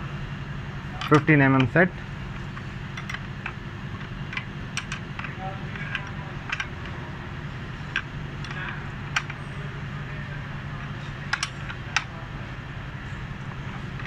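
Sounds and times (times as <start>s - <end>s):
steady low hum: 0.0s - 14.0s
spanner clicking: 0.9s - 7.0s, 7.8s - 9.4s, 11.2s - 12.2s.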